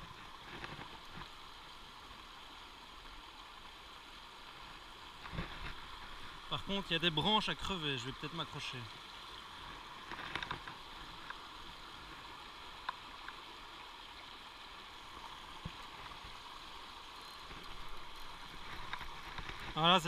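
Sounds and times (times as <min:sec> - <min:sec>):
faint clicks: 0:12.8 - 0:13.4.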